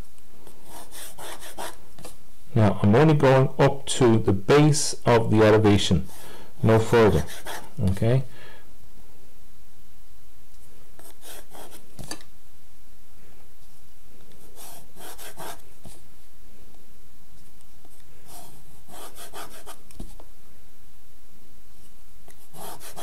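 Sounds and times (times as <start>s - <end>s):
pencil drawing lines on paper: 0.6s - 1.8s, 7.1s - 7.7s, 14.5s - 15.6s, 18.3s - 19.8s, 22.5s - 23.0s.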